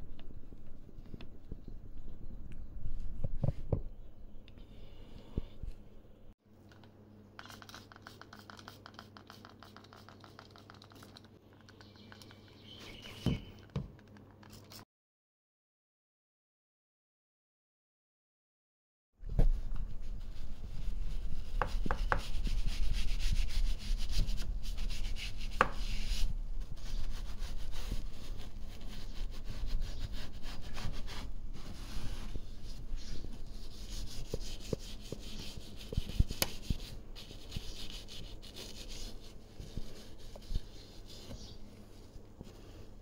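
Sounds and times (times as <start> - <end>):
brush scrubbing rubber: 7.4 - 11.3.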